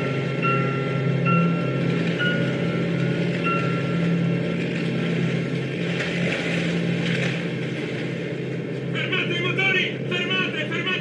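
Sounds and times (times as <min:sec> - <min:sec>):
boat engine droning: 0:00.0 - 0:11.0
water churning and splashing: 0:00.0 - 0:11.0.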